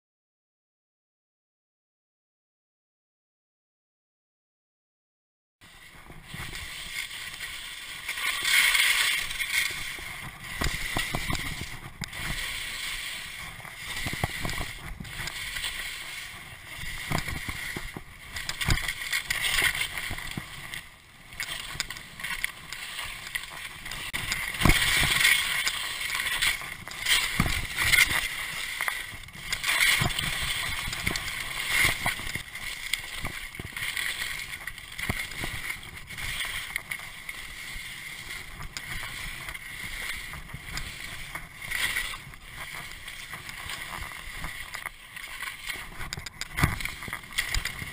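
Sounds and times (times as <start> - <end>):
skis hissing through snow: 5.8 - 20.6, 21.6 - 32.0.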